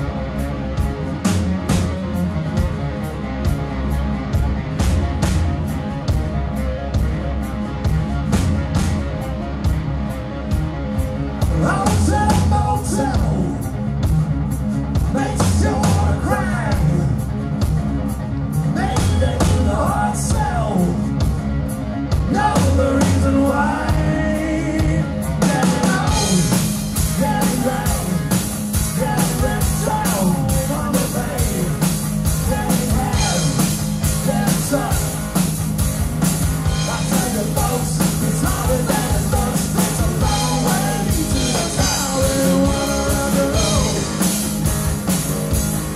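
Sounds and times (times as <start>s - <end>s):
bass guitar: 0.0s - 45.9s
drum kit: 0.0s - 45.9s
electric guitar: 0.0s - 45.9s
man singing: 11.5s - 13.7s, 15.0s - 17.3s, 18.7s - 21.2s, 22.2s - 35.2s, 36.7s - 44.5s.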